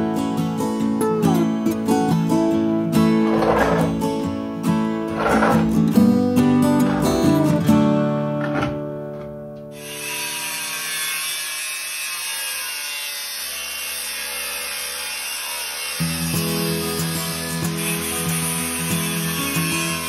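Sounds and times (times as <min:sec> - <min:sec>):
acoustic guitar music: 0:00.0 - 0:09.8, 0:16.0 - 0:20.0
angle grinder cutting steel: 0:03.1 - 0:04.2, 0:05.1 - 0:05.9, 0:06.6 - 0:07.6, 0:09.7 - 0:20.0.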